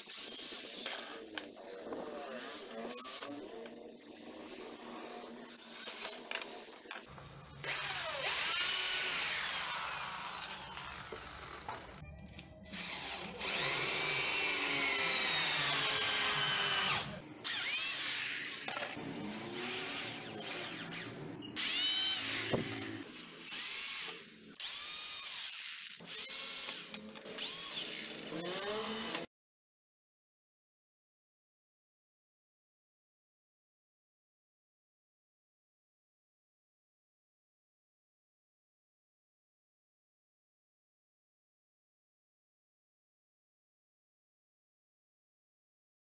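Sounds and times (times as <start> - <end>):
electric drill whining into wood: 0.0 - 3.7, 5.5 - 12.0, 12.7 - 29.3.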